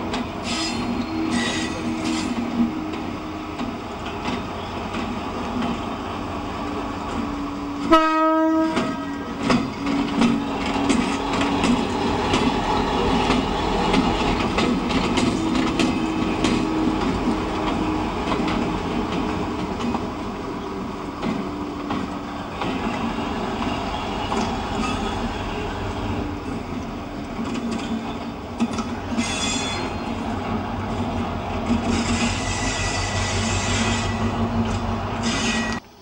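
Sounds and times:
wheels clicking over rail joints: 0.0 - 7.9, 8.6 - 33.1
locomotive horn: 7.8 - 9.8, 29.1 - 30.1, 31.8 - 34.6, 35.2 - 35.8.

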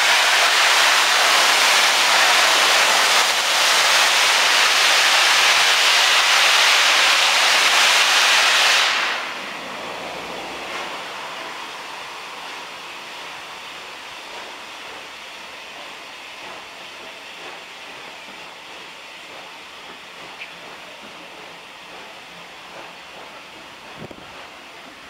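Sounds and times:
steam locomotive hissing: 0.0 - 25.0
carriages rolling past: 9.3 - 12.2.

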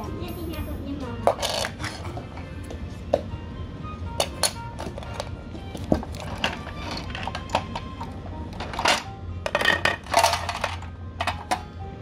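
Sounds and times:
plastic toy pieces clattering on floor: 1.3 - 2.1, 8.6 - 11.6.

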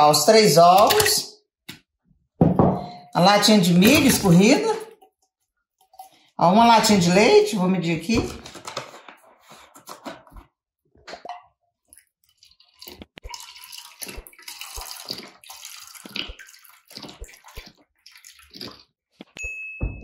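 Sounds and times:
milk pouring and splashing: 3.8 - 6.4, 11.2 - 19.4.

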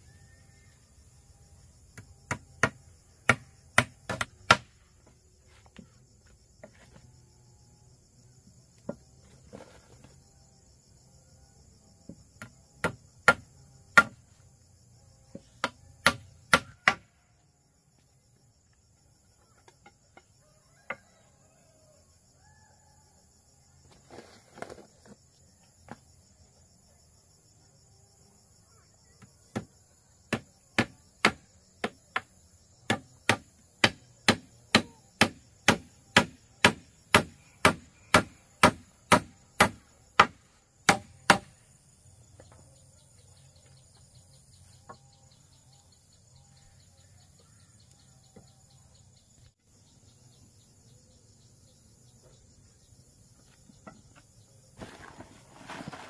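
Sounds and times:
insects chirring: 0.0 - 56.0
hand tool striking wood: 2.0 - 4.7, 12.4 - 14.2, 15.3 - 17.1, 30.3 - 32.3, 32.9 - 41.5, 54.8 - 56.0.

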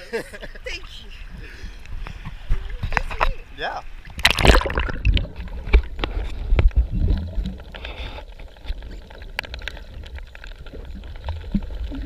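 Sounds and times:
muffled underwater water rumble: 1.2 - 12.0
bubbling water: 4.0 - 12.0
underwater clicks: 4.1 - 8.0.

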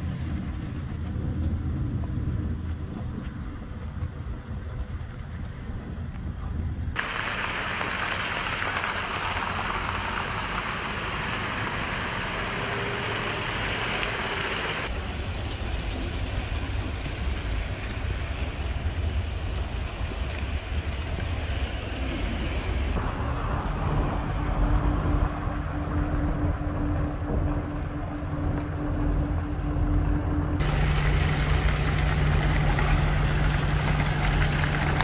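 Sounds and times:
traffic rumble: 0.0 - 35.0
vehicles hissing on wet road: 7.0 - 24.9, 30.6 - 35.0.

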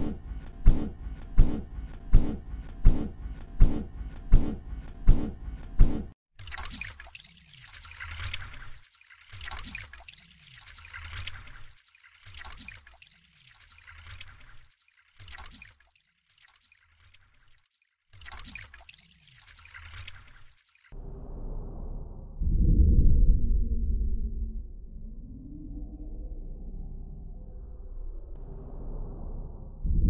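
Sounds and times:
looped water gushing: 5.8 - 21.0.

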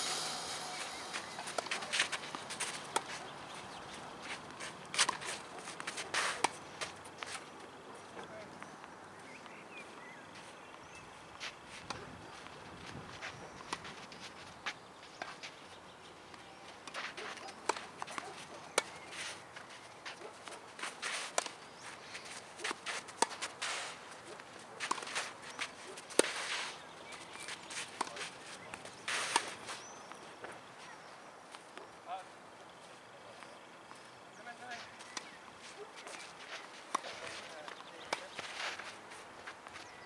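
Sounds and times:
racket hitting tennis ball: 0.0 - 3.2, 24.8 - 25.3, 29.1 - 29.6
shoes scuffing on clay: 0.0 - 8.3, 16.6 - 31.8, 32.8 - 40.0.

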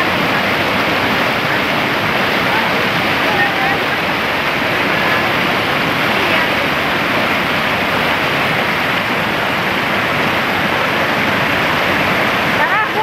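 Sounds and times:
river rushing over boulders: 0.0 - 13.0.

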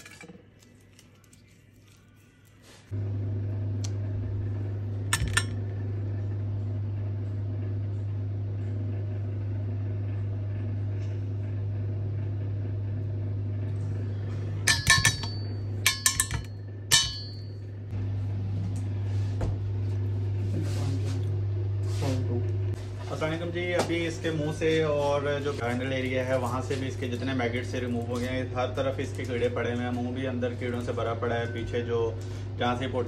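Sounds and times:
low hum: 0.0 - 33.0
forceps clinking against glass: 14.7 - 17.5.

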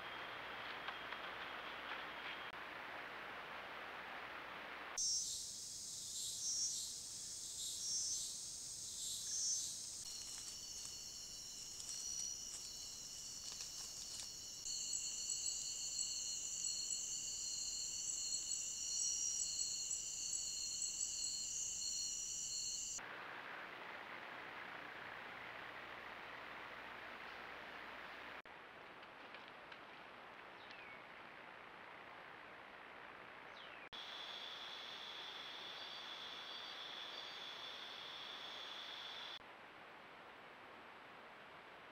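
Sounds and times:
soft steady hiss: 0.0 - 41.9
insect chorus shrill trills: 5.0 - 23.0, 34.0 - 39.4.

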